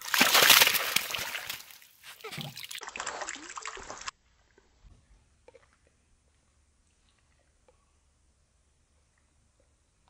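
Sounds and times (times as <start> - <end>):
water splashing and running off: 0.0 - 4.1.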